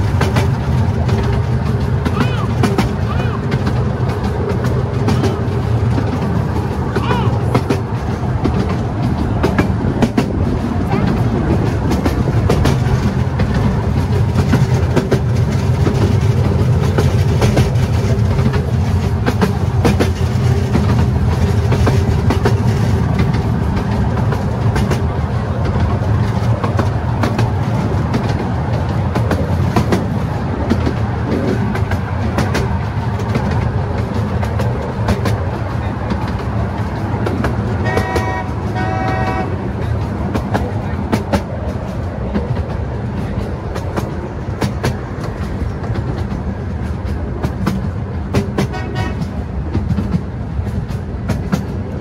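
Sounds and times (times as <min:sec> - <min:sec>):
clicks over rail joints: 0:00.0 - 0:52.0
train wheels rumbling on track: 0:00.0 - 0:52.0
train horn toots: 0:37.8 - 0:39.7, 0:48.6 - 0:49.4.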